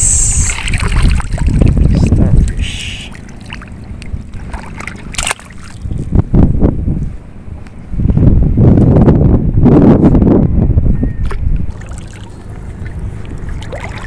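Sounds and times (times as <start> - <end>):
wind rumbling on microphone: 0.0 - 14.0
water sloshing and splashing: 0.4 - 6.2, 11.2 - 14.0.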